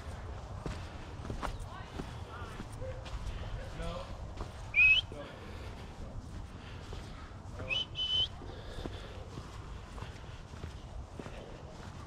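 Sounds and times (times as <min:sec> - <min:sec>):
person whistling: 0:04.7 - 0:05.1, 0:07.7 - 0:08.3.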